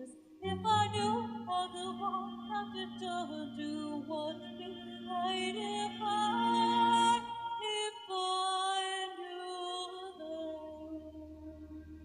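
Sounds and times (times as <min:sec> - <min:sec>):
woman singing into microphone: 0:00.0 - 0:11.6
low sustained accompaniment: 0:00.3 - 0:07.8, 0:10.0 - 0:12.0.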